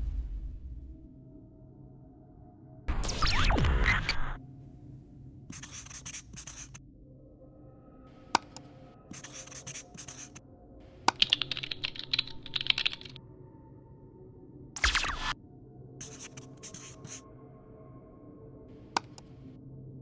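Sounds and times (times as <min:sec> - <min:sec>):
marker pen scratching: 0:05.5 - 0:06.8, 0:09.1 - 0:10.4, 0:11.1 - 0:13.2, 0:16.0 - 0:17.2.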